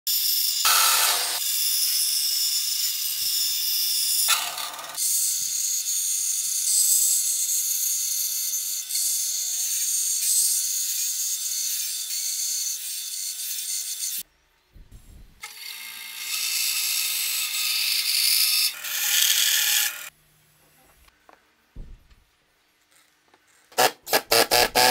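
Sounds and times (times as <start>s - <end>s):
bandsaw cutting plywood: 0.6s - 2.0s, 23.8s - 24.9s
low thump: 14.8s - 15.4s, 21.8s - 22.2s.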